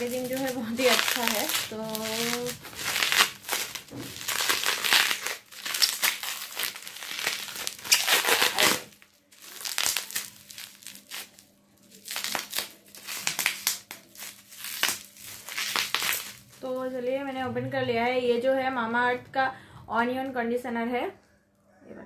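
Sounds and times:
bubble wrap crinkling: 0:00.0 - 0:17.4.

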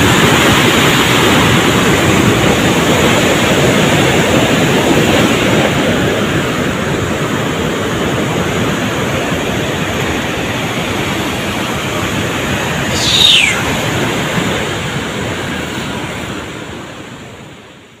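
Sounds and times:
rushing floodwater through gates: 0:00.0 - 0:12.8
high falling tone: 0:12.9 - 0:14.0.

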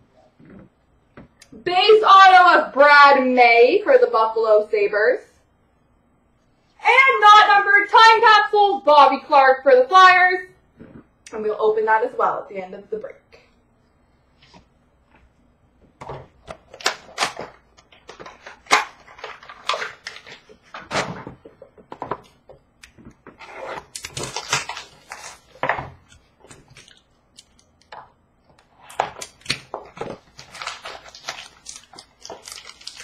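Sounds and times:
wrapper rustling: 0:16.6 - 0:20.9, 0:23.8 - 0:27.7, 0:29.0 - 0:33.0
cards crinkling and clicking: 0:23.8 - 0:28.1, 0:28.9 - 0:33.0.

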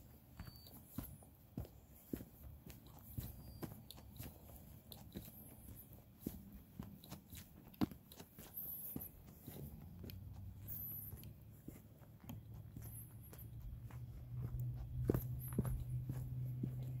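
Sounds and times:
footsteps crunching on gravel: 0:00.0 - 0:17.0
low steady hum: 0:08.7 - 0:17.0.

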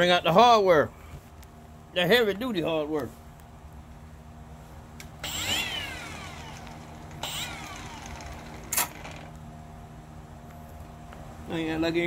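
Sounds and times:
cordless drill motor whining: 0:05.2 - 0:09.3.

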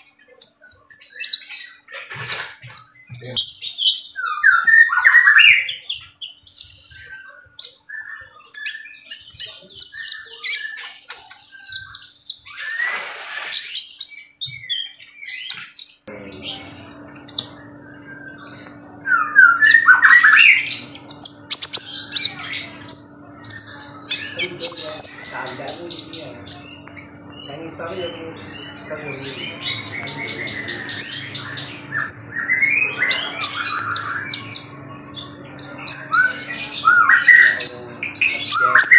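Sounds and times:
sunbird twittering: 0:00.0 - 0:38.9
low hum: 0:16.1 - 0:38.7.

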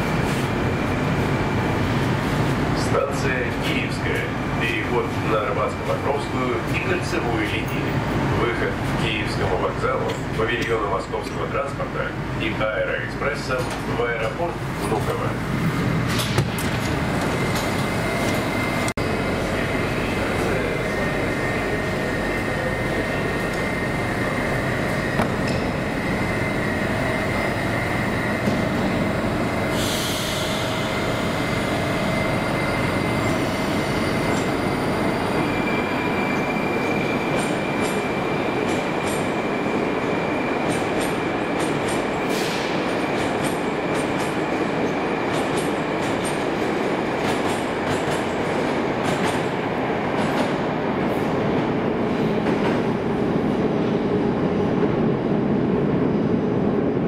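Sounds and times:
train high whine: 0:14.3 - 0:49.1.

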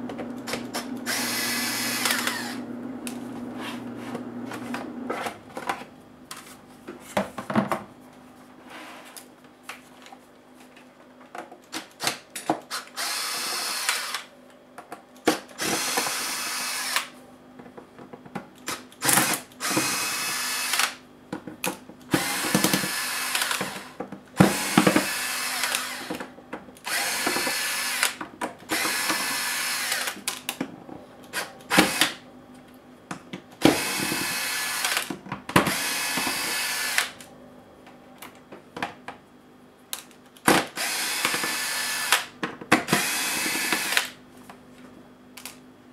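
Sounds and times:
electric screwdriver whirring: 0:00.5 - 0:02.6, 0:12.0 - 0:14.3, 0:15.6 - 0:17.1, 0:18.7 - 0:21.0, 0:22.1 - 0:26.2, 0:26.8 - 0:30.2, 0:31.3 - 0:32.2, 0:33.6 - 0:35.1, 0:35.7 - 0:37.2, 0:40.7 - 0:42.3, 0:42.9 - 0:44.2.

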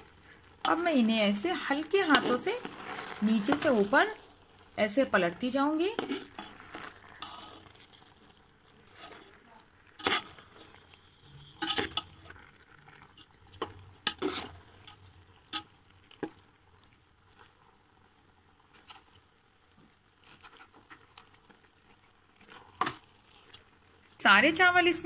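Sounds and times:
metal spoon scraping a pot: 0:00.0 - 0:04.3, 0:05.4 - 0:16.3.

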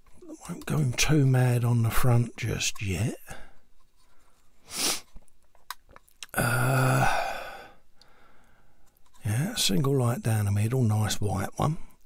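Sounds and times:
man sighing: 0:06.2 - 0:08.3.

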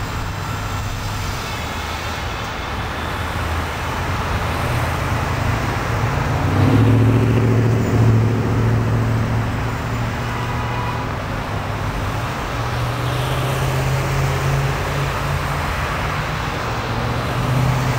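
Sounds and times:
cars driving past: 0:00.0 - 0:17.9.

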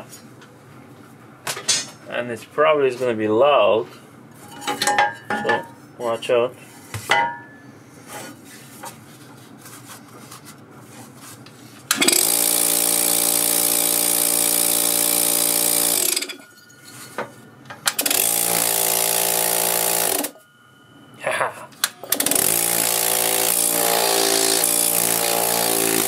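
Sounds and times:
air compressor pump humming: 0:11.9 - 0:16.5, 0:17.1 - 0:20.4, 0:21.8 - 0:26.0.

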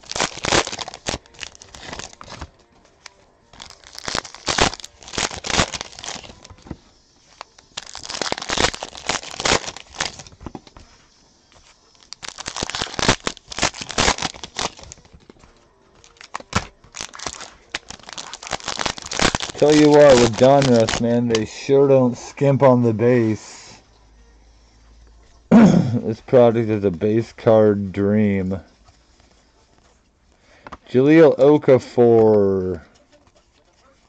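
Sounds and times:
foil wrappers crinkling: 0:00.0 - 0:21.8.

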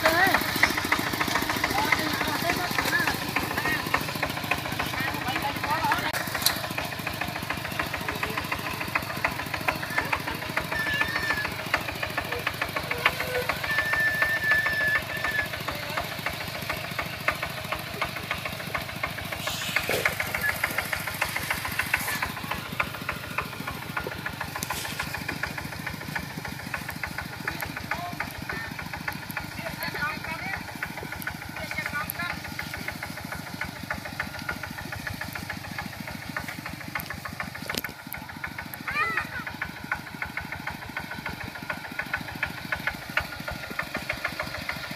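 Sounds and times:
diesel tractor engine knocking: 0:00.0 - 0:44.9.

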